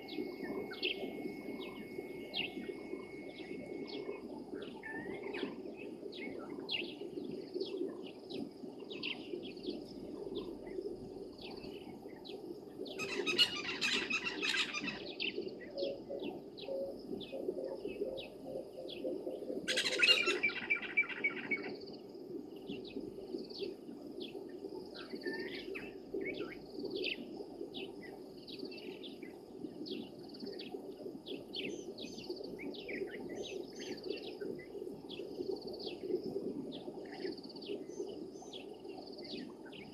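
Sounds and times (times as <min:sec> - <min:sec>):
low steady hum: 0:00.0 - 0:28.4
rapid repeated bird calls: 0:13.0 - 0:21.7.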